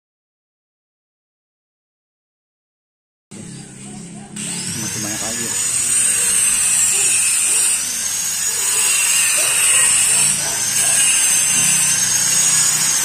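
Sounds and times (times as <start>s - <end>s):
angle grinder grinding steel: 4.4s - 13.0s.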